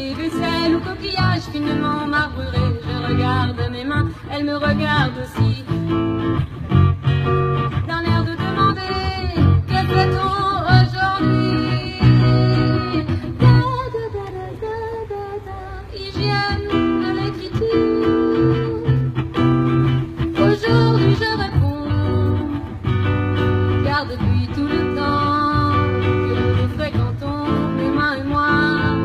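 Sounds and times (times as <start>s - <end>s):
woman singing: 0.0s - 6.7s, 7.6s - 29.0s
electric guitar: 0.0s - 14.7s, 15.3s - 29.0s.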